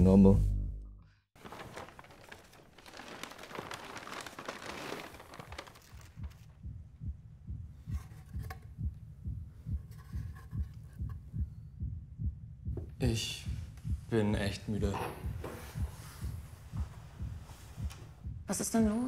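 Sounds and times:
heartbeat thumps: 0:01.5 - 0:19.0.

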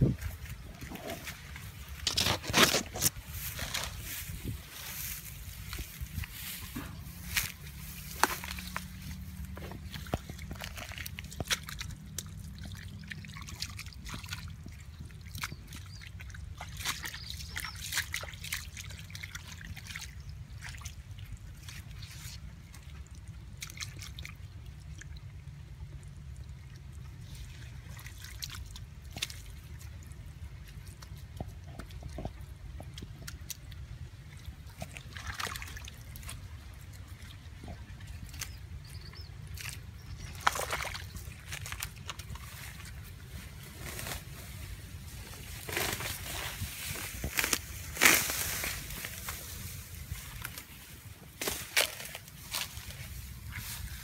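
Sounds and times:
hands splashing in muddy water: 0:32.9 - 0:54.0.

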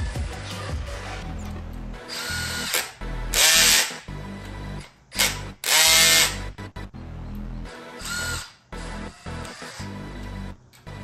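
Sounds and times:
cordless driver whirring: 0:02.1 - 0:04.0, 0:05.1 - 0:06.4, 0:08.0 - 0:10.0.

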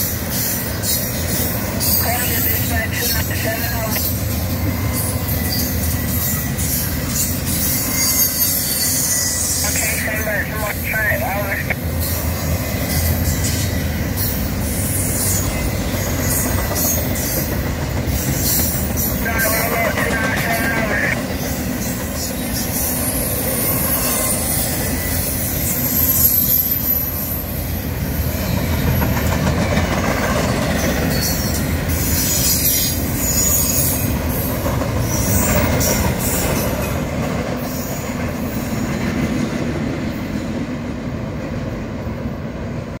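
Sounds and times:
train wheels rumbling on rails: 0:00.0 - 0:43.0
high-pitched wheel squeal: 0:04.8 - 0:09.7, 0:22.5 - 0:27.5.

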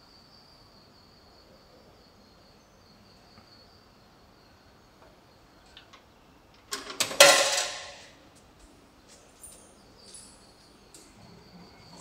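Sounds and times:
coin clattering through vending machine: 0:06.7 - 0:08.1.

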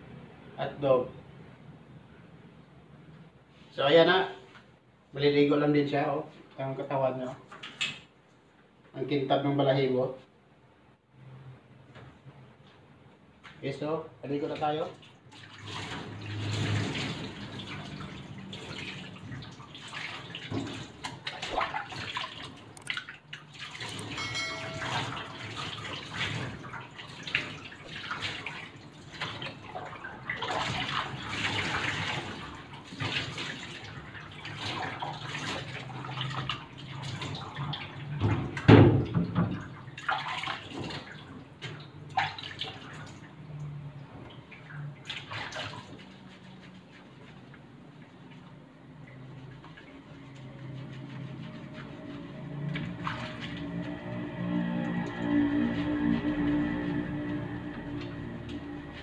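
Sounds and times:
water splashing over a dog: 0:14.6 - 0:43.4, 0:44.6 - 0:47.5, 0:49.2 - 0:59.0.

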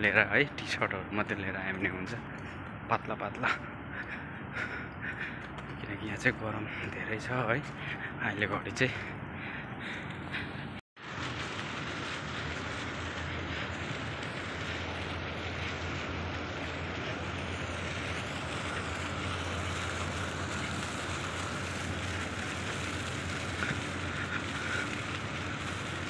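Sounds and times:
constant low hum: 0:00.0 - 0:26.0
rushing hiss: 0:11.0 - 0:26.0.

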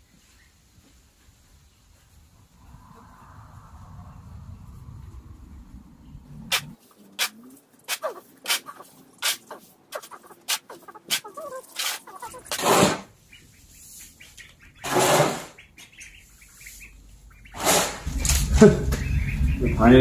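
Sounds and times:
loud rushing noises: 0:02.4 - 0:07.3, 0:17.5 - 0:20.0
young ducks peeping: 0:06.1 - 0:20.0
plastic shovel scraping concrete: 0:06.5 - 0:13.1, 0:14.8 - 0:15.5, 0:17.6 - 0:18.1.

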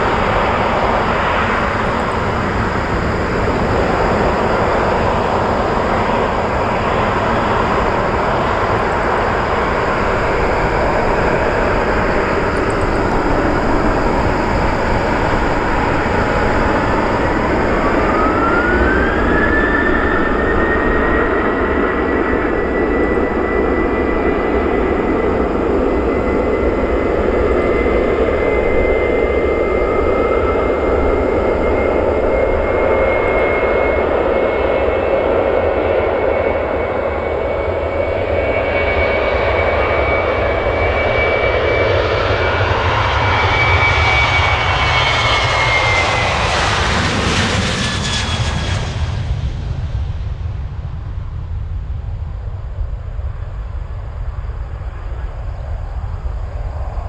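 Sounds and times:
jet engine high whine: 0:00.0 - 0:57.0
jet roar: 0:00.0 - 0:57.0.

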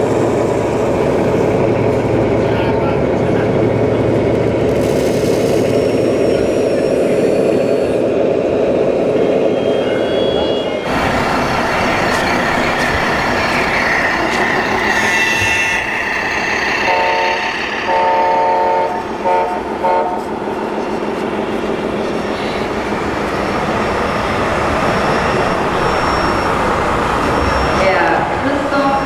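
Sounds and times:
model trucks running: 0:02.0 - 0:08.2
hall noise: 0:05.6 - 0:29.0
air horn blasts: 0:16.8 - 0:20.2.

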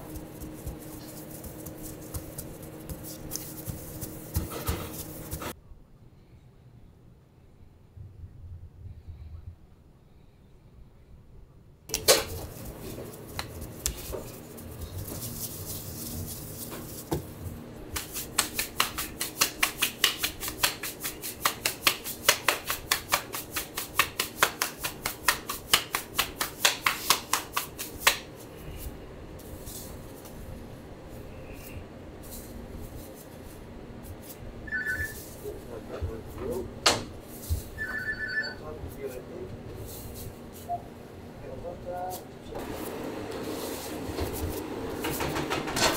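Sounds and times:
dough slapped between hands: 0:00.0 - 0:05.4, 0:13.3 - 0:14.2, 0:17.9 - 0:28.3
soft pats of dough: 0:00.0 - 0:05.6, 0:11.9 - 0:34.5
low steady hum: 0:00.0 - 0:26.6.

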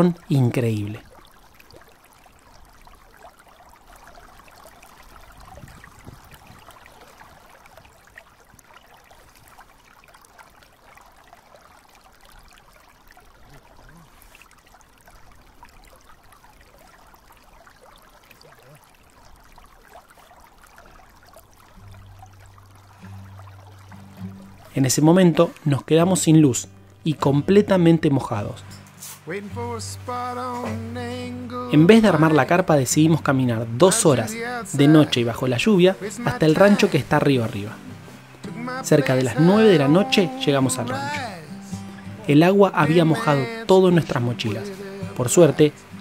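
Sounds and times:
light rain falling: 0:00.0 - 0:46.0
river water running: 0:00.0 - 0:46.0.

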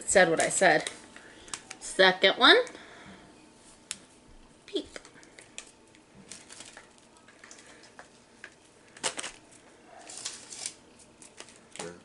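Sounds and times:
plastic wrapper crinkling: 0:04.7 - 0:12.0.

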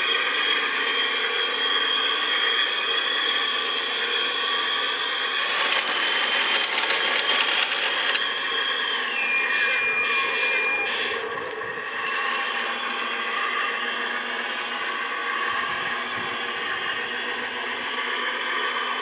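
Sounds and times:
electric motor whine: 0:00.0 - 0:18.9
rapid clicking and rattling: 0:05.4 - 0:08.3, 0:12.0 - 0:13.2.

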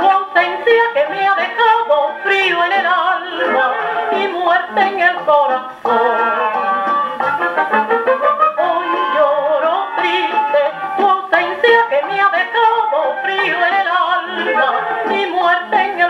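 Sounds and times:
orchestral song on a phonograph: 0:00.0 - 0:16.0
woman singing over an orchestra: 0:08.6 - 0:16.0.

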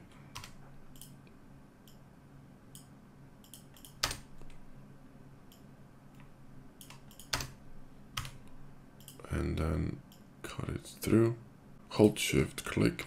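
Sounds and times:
keyboard and mouse clicks: 0:00.3 - 0:02.0, 0:02.7 - 0:04.6, 0:05.5 - 0:07.6, 0:08.2 - 0:09.2.

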